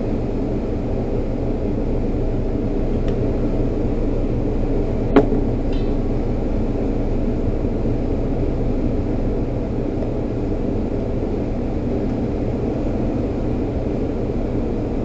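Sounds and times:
steady machine drone with hiss: 0:00.0 - 0:15.0
sharp click: 0:05.2 - 0:06.0.

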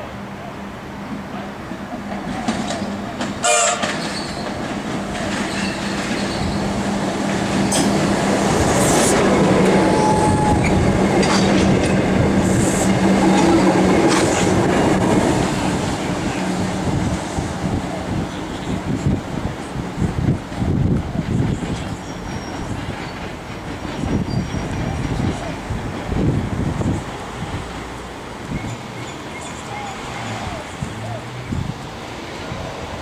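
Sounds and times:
electric train hum: 0:00.0 - 0:33.0
train wheels clattering over rails: 0:01.6 - 0:17.5, 0:19.6 - 0:29.5
train horn blast: 0:03.4 - 0:04.0, 0:09.6 - 0:10.8.

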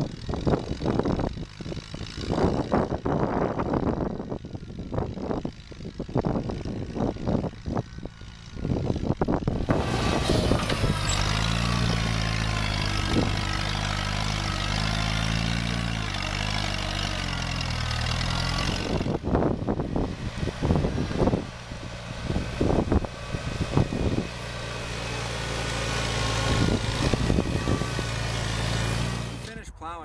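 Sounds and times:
tractor engine running under load: 0:00.0 - 0:29.6
wind gusting on microphone: 0:00.0 - 0:29.6.

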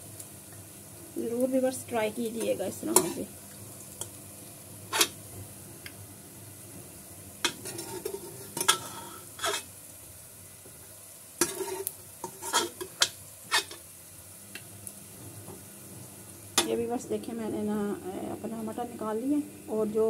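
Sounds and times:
onions sizzling: 0:00.0 - 0:20.0
spoon scraping metal pot: 0:02.9 - 0:03.3, 0:07.5 - 0:09.7, 0:11.4 - 0:13.8.

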